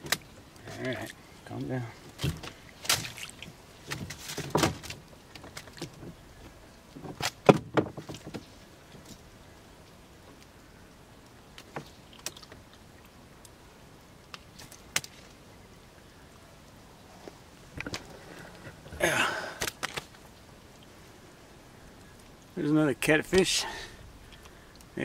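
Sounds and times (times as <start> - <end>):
fish splashing: 2.1 - 6.0.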